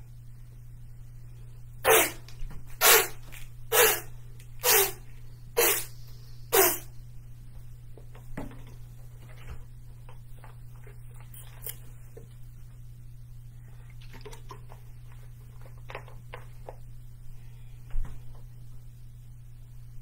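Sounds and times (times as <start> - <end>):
sharp vocal bursts: 1.8 - 2.2, 2.8 - 5.0, 5.6 - 6.9.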